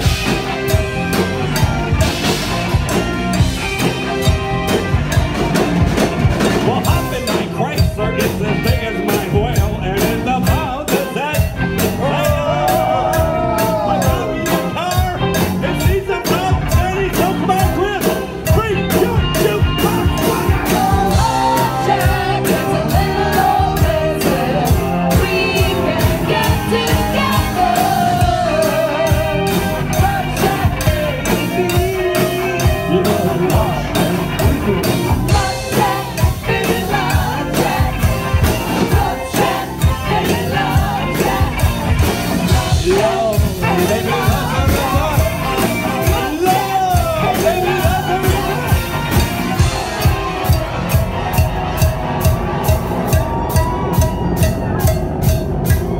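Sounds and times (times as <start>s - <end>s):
cowbell beat: 0.0s - 55.9s
live rock band playing: 0.0s - 55.9s
person singing: 42.4s - 49.0s.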